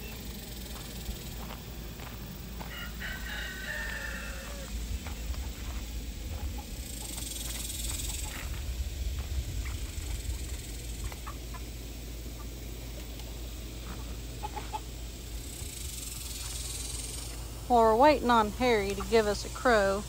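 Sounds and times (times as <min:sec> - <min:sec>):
chickens clucking: 0:00.0 - 0:19.9
low rumble: 0:04.2 - 0:13.8.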